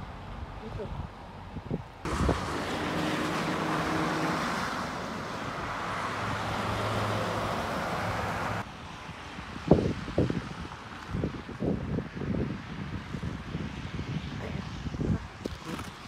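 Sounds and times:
low engine hum: 0.0s - 8.7s
tyres hissing on road: 2.1s - 8.6s.

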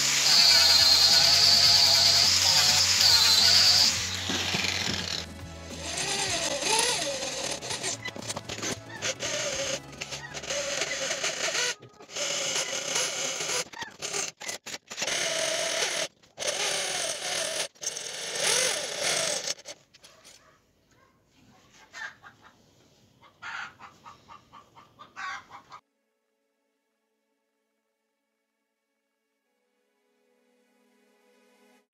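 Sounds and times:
electric drill squealing through steel: 0.0s - 19.8s.

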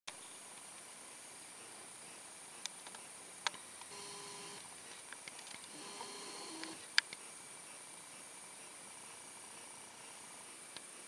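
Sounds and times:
sharp clicks: 2.8s - 7.2s.

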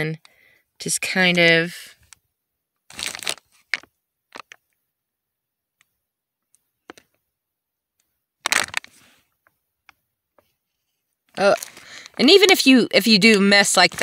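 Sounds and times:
phone handling rustle: 8.4s - 9.1s.

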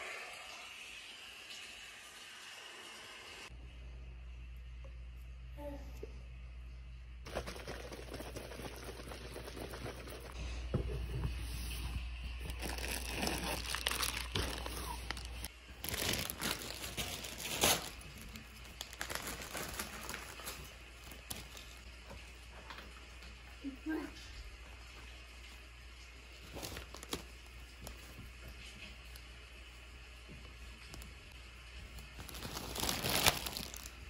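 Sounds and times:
objects crinkling and rustling: 7.3s - 23.3s, 24.9s - 29.3s, 30.3s - 34.0s.

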